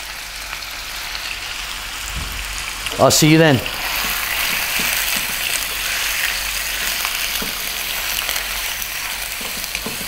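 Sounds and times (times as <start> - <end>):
meat sizzling in a pan: 0.0 - 10.0
wooden spatula stirring: 3.7 - 10.0.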